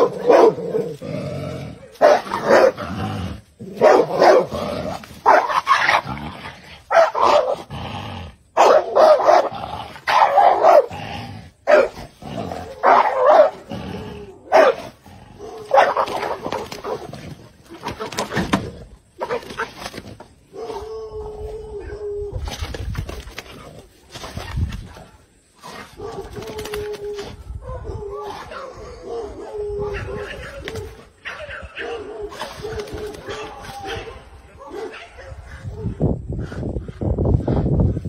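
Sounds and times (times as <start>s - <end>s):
dog barking: 0.0s - 0.8s, 2.0s - 2.8s, 3.8s - 4.5s, 5.2s - 6.0s, 6.9s - 7.6s, 8.6s - 9.5s, 10.1s - 10.9s, 11.7s - 12.0s, 12.7s - 13.7s, 14.5s - 17.0s, 27.6s - 36.0s.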